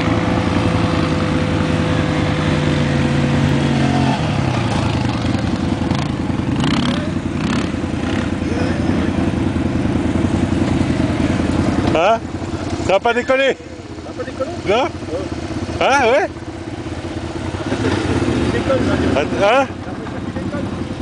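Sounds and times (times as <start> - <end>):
quad bike engine running: 0.0 - 21.0.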